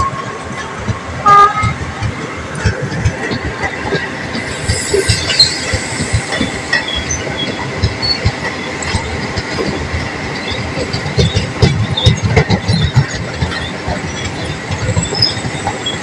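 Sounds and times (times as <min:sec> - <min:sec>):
train wheels rattling on rails: 0:00.0 - 0:16.0
high wheel squeals: 0:04.2 - 0:08.8, 0:14.1 - 0:16.0.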